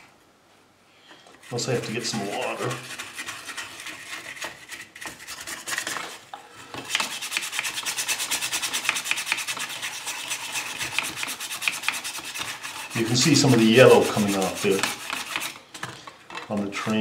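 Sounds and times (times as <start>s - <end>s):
toothbrush scrubbing metal: 1.4s - 6.2s, 6.9s - 15.6s.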